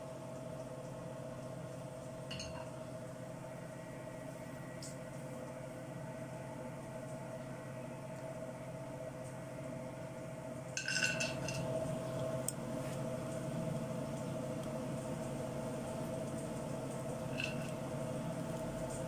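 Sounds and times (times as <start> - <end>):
steady background hum: 0.0 - 19.0
nuts clattering into metal pan: 10.8 - 11.7, 17.3 - 17.8.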